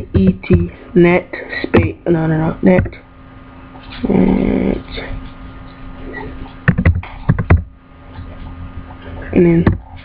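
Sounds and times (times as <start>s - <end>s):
low rough vocal sound: 4.0s - 5.2s
keyboard keys clicking: 6.7s - 7.7s.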